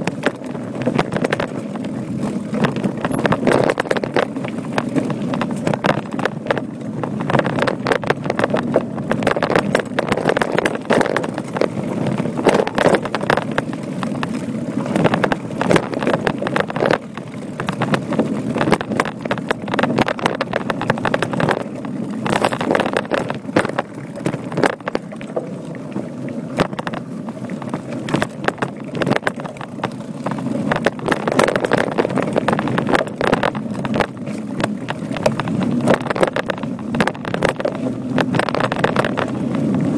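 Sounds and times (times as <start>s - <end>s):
bike rattling and knocking: 0.0s - 25.6s, 26.4s - 39.9s
bike tyres rumbling on dirt: 0.0s - 39.9s.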